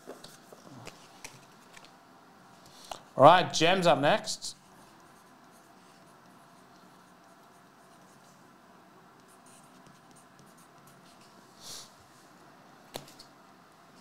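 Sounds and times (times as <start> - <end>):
marker pen scratching on paper: 4.6 - 11.4.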